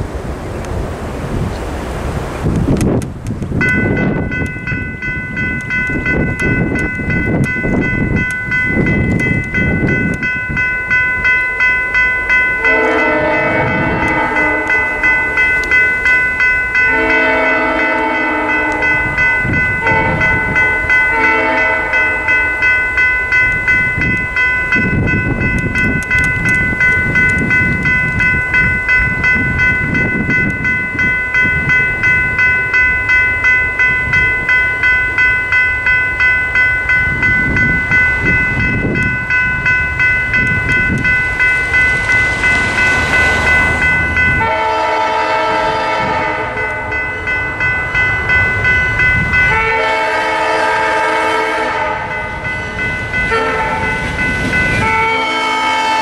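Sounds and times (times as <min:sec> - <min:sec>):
crossing bell dinging: 0:03.6 - 0:56.0
locomotive horn blasts: 0:12.6 - 0:14.9, 0:16.8 - 0:19.2, 0:19.8 - 0:22.2, 0:44.3 - 0:46.8, 0:49.4 - 0:52.2, 0:53.3 - 0:53.9, 0:54.8 - 0:56.0.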